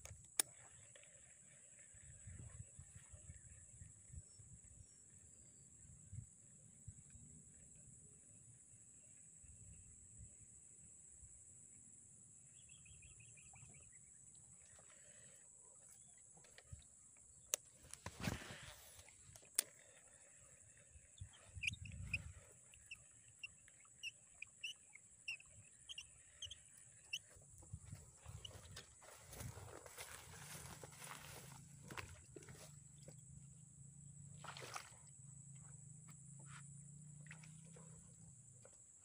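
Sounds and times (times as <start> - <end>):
reel chirps and ticks: 0.0 - 1.1, 15.8 - 18.2, 19.0 - 20.1, 20.9 - 33.3.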